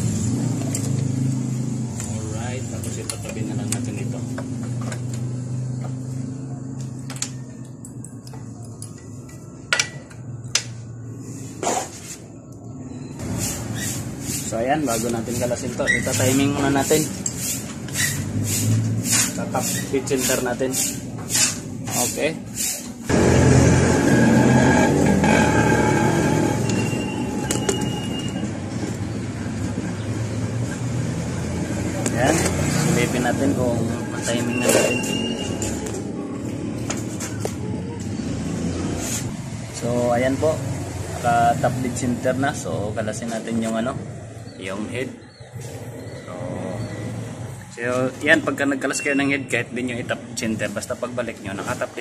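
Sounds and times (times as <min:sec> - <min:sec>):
engine running: 0:23.1 - 0:39.2.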